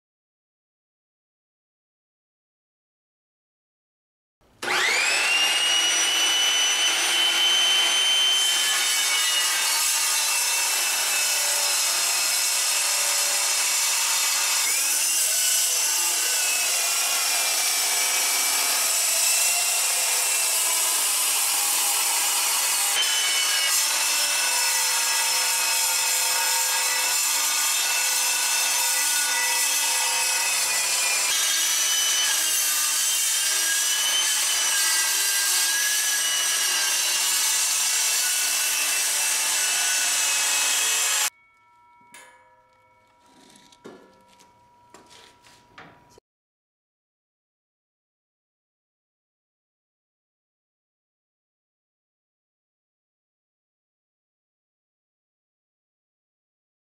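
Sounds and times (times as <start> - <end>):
blade grinding through metal: 4.6 - 41.5
metal saw whining: 4.6 - 46.2.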